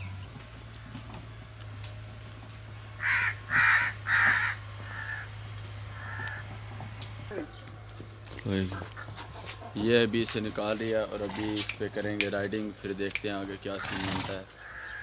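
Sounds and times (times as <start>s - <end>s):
crow cawing: 3.0s - 6.6s, 13.7s - 15.0s.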